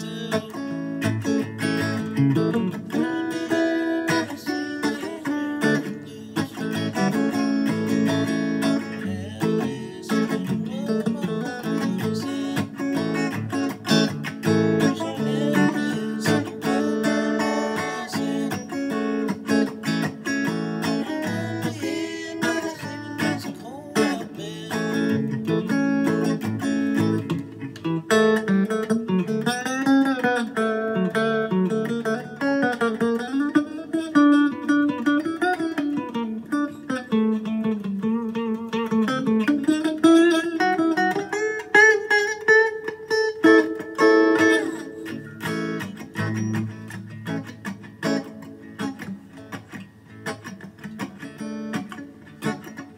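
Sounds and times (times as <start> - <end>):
electric guitar playing: 0.0 - 52.9.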